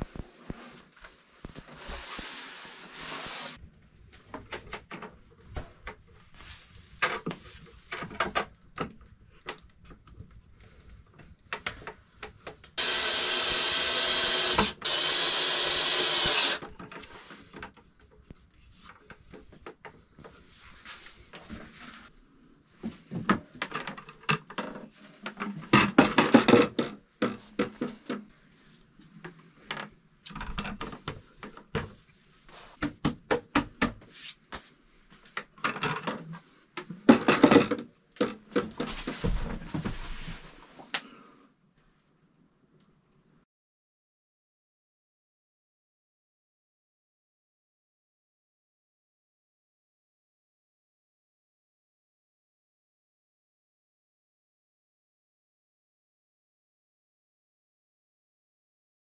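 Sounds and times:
cordless drill running: 12.8s - 16.6s.

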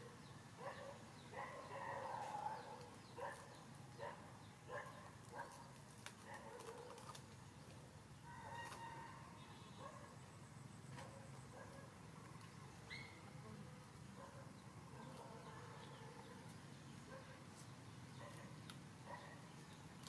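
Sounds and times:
faint animal calls: 12.8s - 13.8s.

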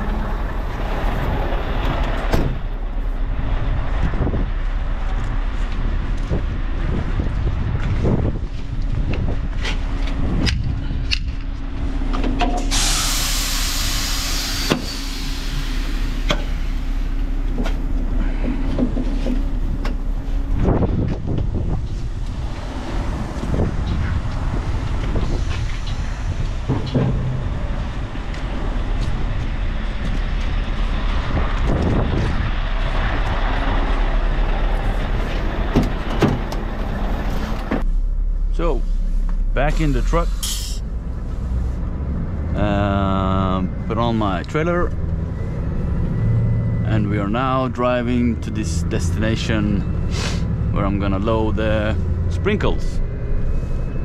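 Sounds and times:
heavy truck idling: 0.0s - 7.8s, 8.9s - 54.0s
air release hiss: 12.6s - 17.0s.

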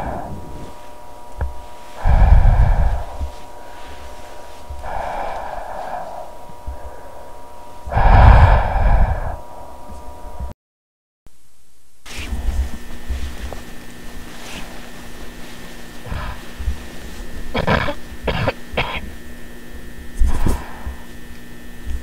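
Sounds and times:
person breathing heavily into microphone: 0.0s - 9.8s, 16.0s - 16.8s, 20.2s - 21.1s
thin hum: 0.0s - 10.5s, 11.3s - 22.0s.

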